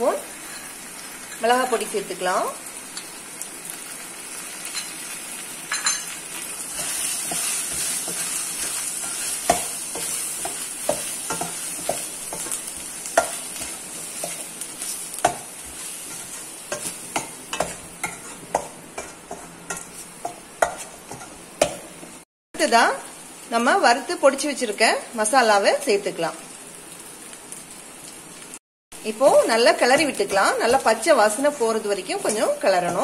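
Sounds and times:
food sizzling in hot oil: 0.0 - 33.0
spoon scraping and clinking on pan: 13.2 - 21.8.

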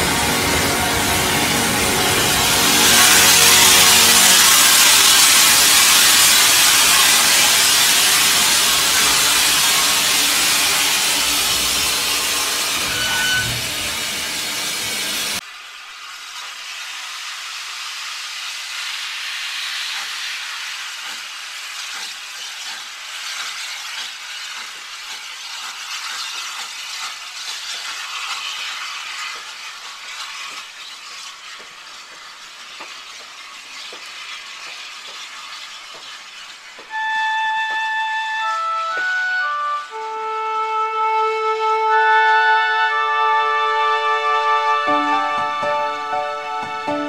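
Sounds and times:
flute music: 0.0 - 14.0, 36.9 - 47.0
steam train hissing: 0.0 - 47.0.

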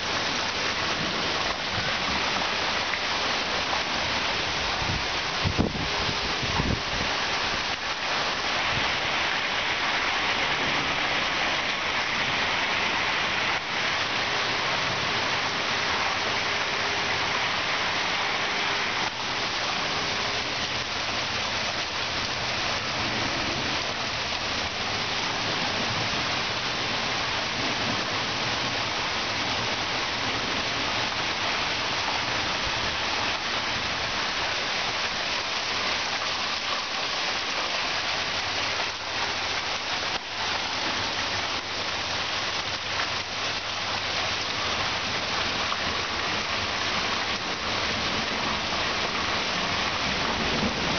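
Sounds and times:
heavy rain falling: 0.0 - 50.9.

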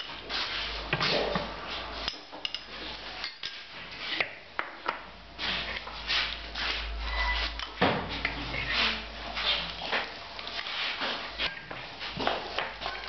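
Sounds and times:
ladle clinking on porcelain bowls: 2.1 - 3.6.

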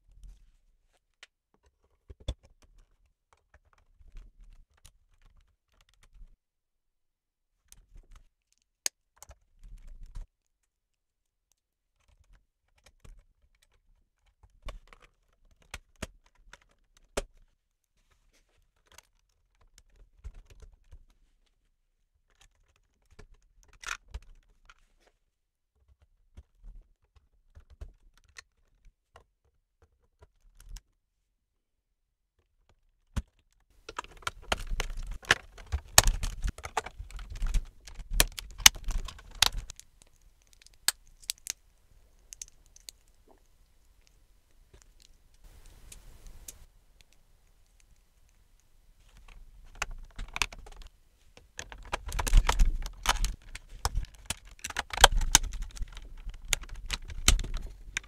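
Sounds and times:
plastic bricks clicking: 33.8 - 45.2, 49.2 - 58.0.

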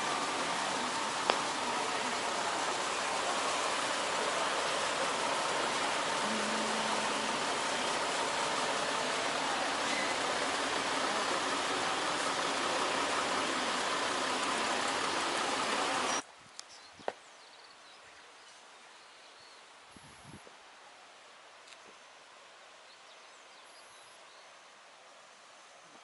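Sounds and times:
traffic and buses hissing: 0.0 - 16.2.

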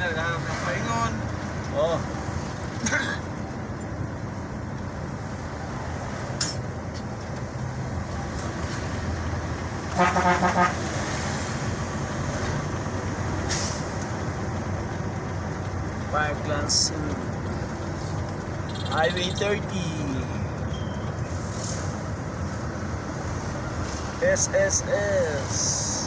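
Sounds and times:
vehicle engine and road noise: 0.0 - 26.0
car horn beeps: 9.9 - 10.8, 18.7 - 19.4.

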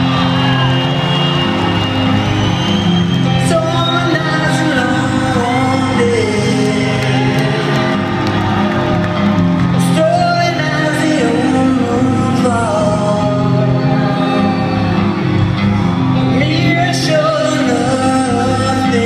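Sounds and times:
electric guitar chords: 0.0 - 19.0
faint crowd noise: 0.0 - 19.0
man singing: 3.3 - 8.0, 9.7 - 14.8, 16.2 - 19.0.

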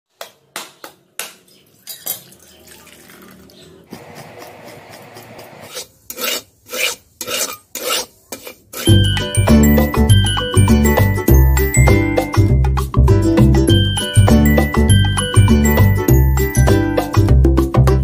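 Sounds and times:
coconut being grated: 3.9 - 9.3
spatula scraping metal wok: 4.1 - 9.4.

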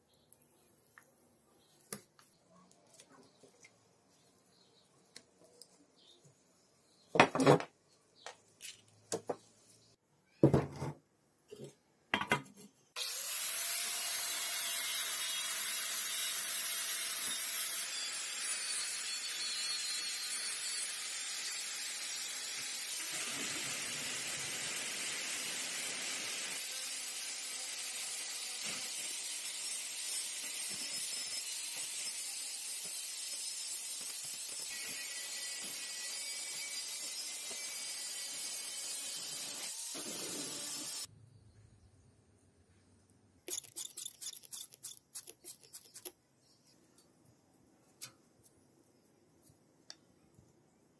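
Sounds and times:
power tool whining: 13.0 - 41.1.

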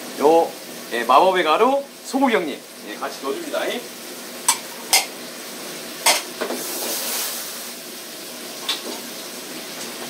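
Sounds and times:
food sizzling in a frying pan: 0.0 - 10.0
clinks of dishes and utensils: 4.5 - 5.1, 6.1 - 6.3.

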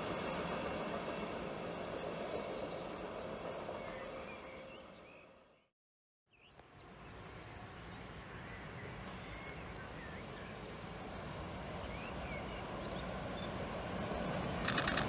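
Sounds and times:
train wheels rumbling on rail: 10.9 - 15.0.

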